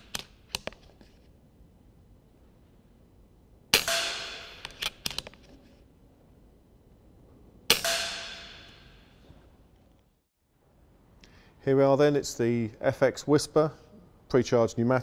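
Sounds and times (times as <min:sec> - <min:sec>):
metallic ringing: 0:07.7 - 0:09.3.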